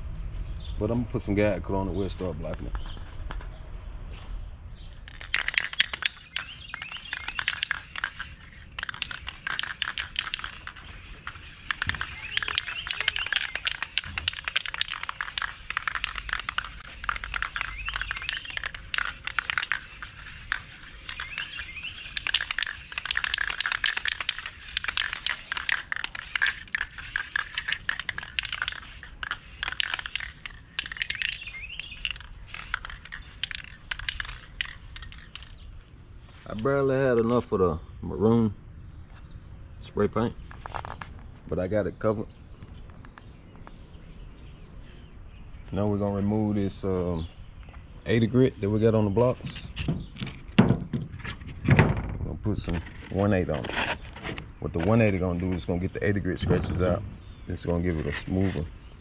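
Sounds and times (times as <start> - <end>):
spray can hissing: 5.1 - 35.6.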